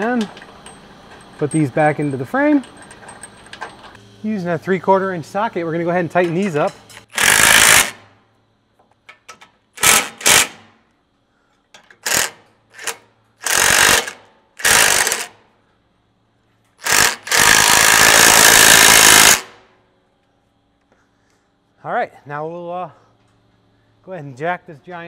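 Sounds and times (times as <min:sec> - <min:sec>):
impact wrench rattling: 0:11.8 - 0:15.3, 0:16.8 - 0:19.5.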